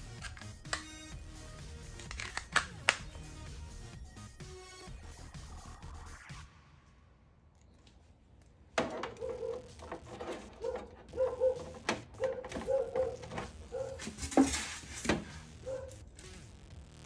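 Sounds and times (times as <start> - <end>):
plugs and cables clicking: 0.0 - 1.2, 1.9 - 3.2, 7.6 - 15.3.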